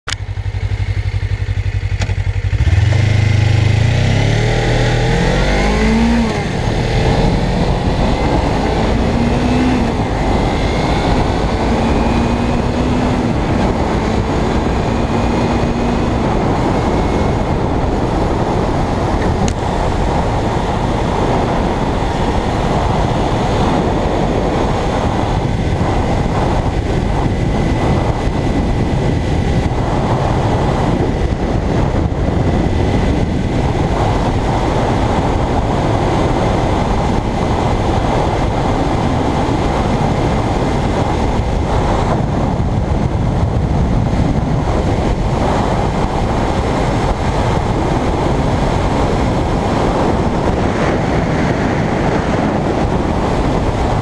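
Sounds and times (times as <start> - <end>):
motorcycle engine accelerating: 0.0 - 54.0
wind rush on microphone: 0.0 - 54.0.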